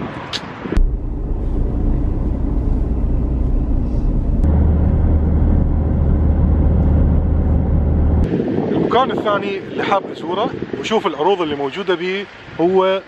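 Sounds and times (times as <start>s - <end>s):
car cabin road and engine rumble: 0.7s - 8.4s.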